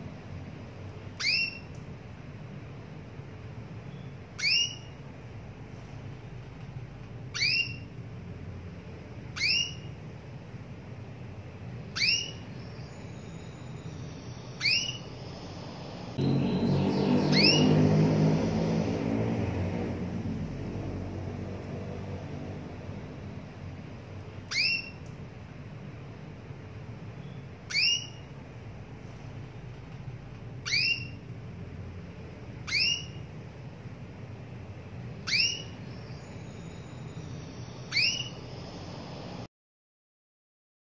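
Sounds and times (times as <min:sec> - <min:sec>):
canary rising call notes: 0:01.2 - 0:01.7, 0:04.4 - 0:05.0, 0:07.3 - 0:07.9, 0:09.4 - 0:09.9, 0:11.9 - 0:23.0, 0:24.4 - 0:25.0, 0:27.2 - 0:28.3, 0:30.6 - 0:31.2, 0:32.6 - 0:33.3, 0:35.2 - 0:39.4.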